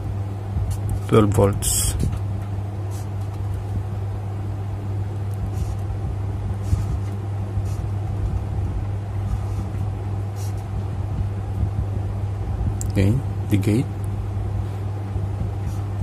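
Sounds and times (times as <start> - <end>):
steady low hum: 0.0 - 16.0
marker scratching on paper: 5.5 - 5.8, 6.6 - 7.9, 9.2 - 10.7.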